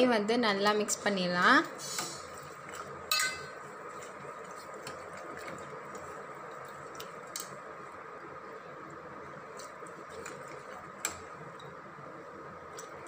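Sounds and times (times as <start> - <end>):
steady background hum: 0.0 - 13.0
ladle stirring in a pot: 1.7 - 8.0, 9.1 - 13.0
ladle clinking on pot: 3.1 - 3.6.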